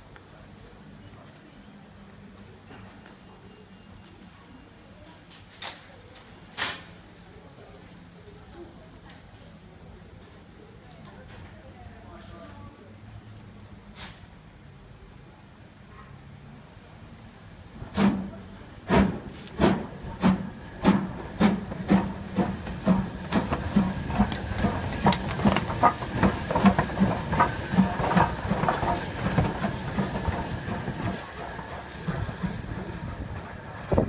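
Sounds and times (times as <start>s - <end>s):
steam locomotive chuffing: 17.7s - 34.0s
steam hissing: 17.8s - 34.0s.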